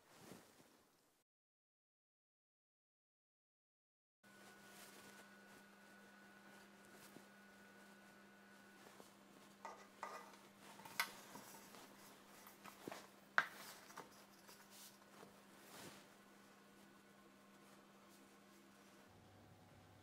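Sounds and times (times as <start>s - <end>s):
kitchen towel rustling: 0.0s - 0.8s, 4.4s - 7.8s, 8.6s - 19.1s.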